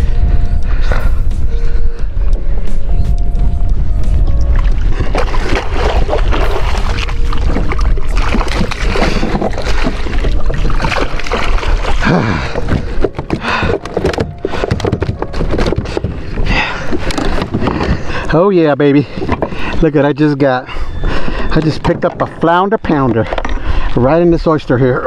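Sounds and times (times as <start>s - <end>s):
wind rumbling on microphone: 0.0s - 25.0s
water splashing: 4.1s - 20.2s.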